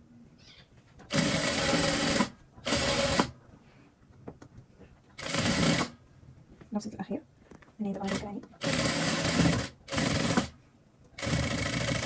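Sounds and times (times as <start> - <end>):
sewing machine stitching: 1.1 - 3.3, 5.2 - 6.0, 8.0 - 10.6, 11.2 - 12.0.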